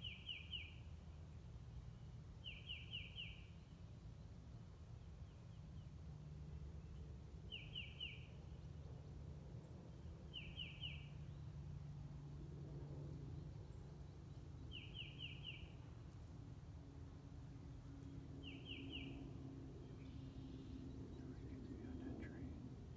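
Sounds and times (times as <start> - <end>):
faint low rumble: 0.0 - 22.9
songbird high down-slurred calls: 2.4 - 3.6, 7.5 - 8.4, 10.3 - 11.3, 14.6 - 15.8, 18.4 - 19.2.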